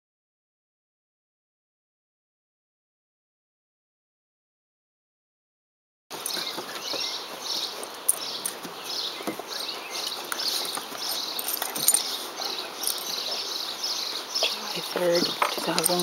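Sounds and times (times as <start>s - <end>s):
dogs wrestling on wooden deck: 6.1s - 16.0s.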